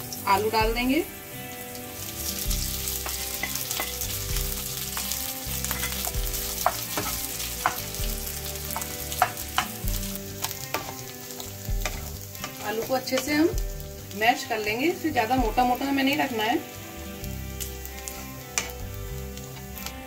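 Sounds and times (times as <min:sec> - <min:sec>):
potatoes sizzling in oil: 0:00.0 - 0:20.0
spatula tapping and scraping pan: 0:03.0 - 0:04.0, 0:04.9 - 0:09.8, 0:10.4 - 0:13.4, 0:18.5 - 0:18.8.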